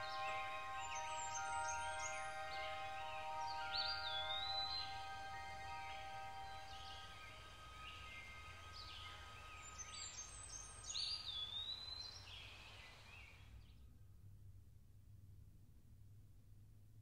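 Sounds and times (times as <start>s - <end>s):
faint ambient music: 0.0s - 13.1s.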